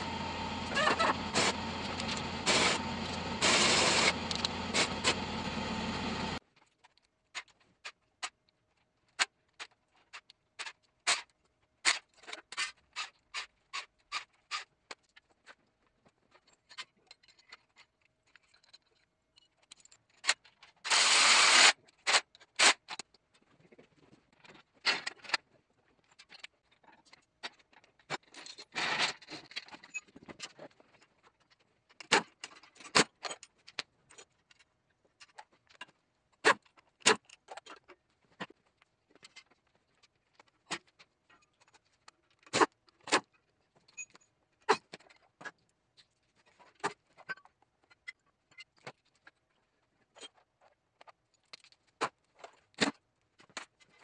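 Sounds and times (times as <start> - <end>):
cordless drill running: 0.0 - 6.4, 20.9 - 21.7.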